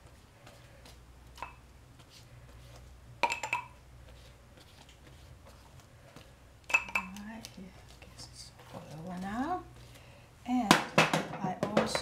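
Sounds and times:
faint steady hum: 0:00.0 - 0:12.0
pastry brush clinking on dish: 0:06.7 - 0:07.5.

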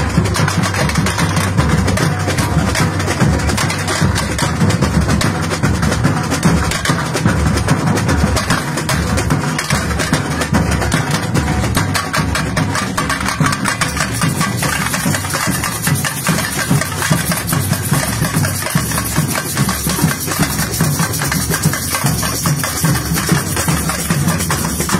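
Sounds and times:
bass drums: 0:00.0 - 0:24.9
hand-held percussion: 0:00.0 - 0:24.9
snare drums: 0:00.0 - 0:24.9.

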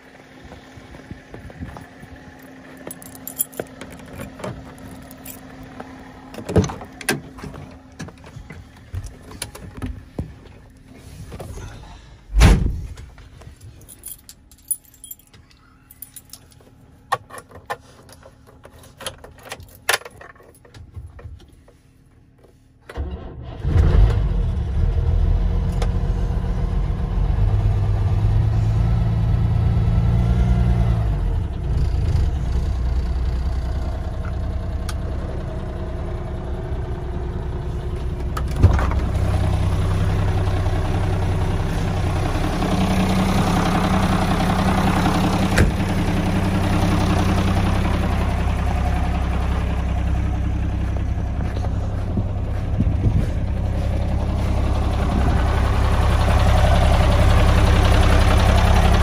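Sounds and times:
diesel engine idling: 0:00.0 - 0:17.1, 0:24.8 - 0:59.0
diesel engine cranking: 0:00.8 - 0:20.8, 0:22.8 - 0:59.0
truck door shutting: 0:12.3 - 0:13.0.

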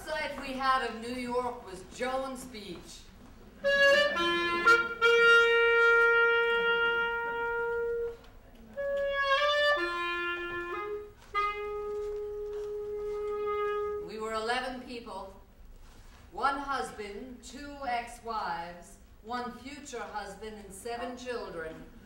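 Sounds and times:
wind instrument phrases: 0:03.6 - 0:14.5.

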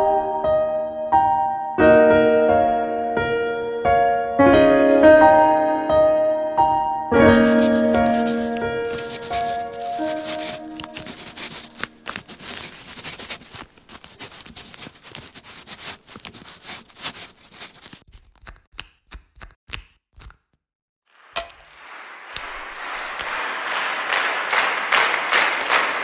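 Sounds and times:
soft piano chord: 0:00.0 - 0:11.4
pen scratching on paper: 0:07.2 - 0:18.0.

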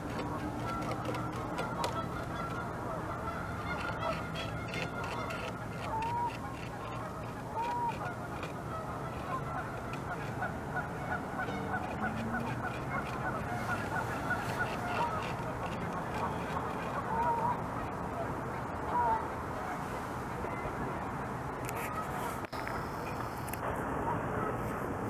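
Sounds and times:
beaver teeth scraping wood: 0:00.0 - 0:02.7, 0:03.6 - 0:10.5, 0:11.1 - 0:17.5
geese honking: 0:00.0 - 0:20.7.

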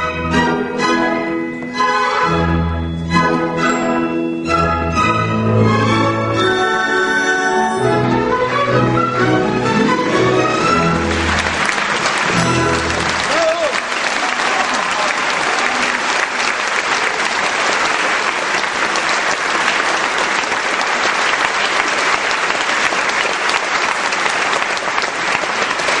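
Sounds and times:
audience applauding: 0:10.0 - 0:26.0.

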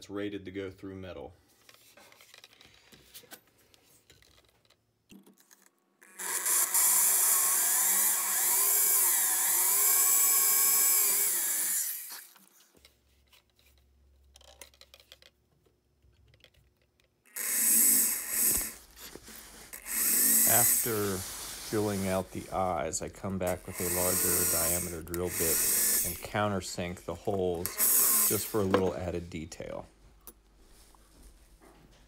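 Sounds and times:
electric drill whining: 0:06.0 - 0:12.5, 0:17.3 - 0:22.5, 0:23.5 - 0:26.3, 0:27.5 - 0:28.8.

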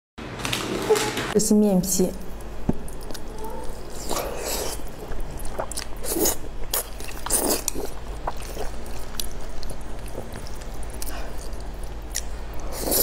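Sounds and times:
person slurping noodles: 0:05.4 - 0:06.4, 0:12.6 - 0:13.0.

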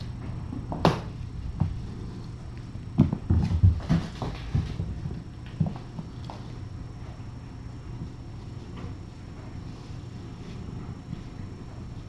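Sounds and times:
kittens' paws thudding on floor: 0:03.0 - 0:06.6.

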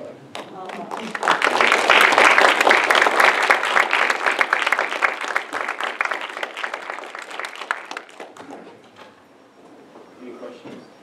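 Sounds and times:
audience applauding: 0:00.6 - 0:08.7.

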